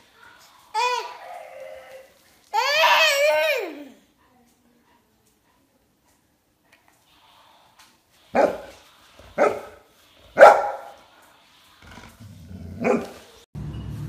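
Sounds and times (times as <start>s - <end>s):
dog barking: 8.3s - 8.7s, 9.3s - 11.0s, 12.7s - 13.3s.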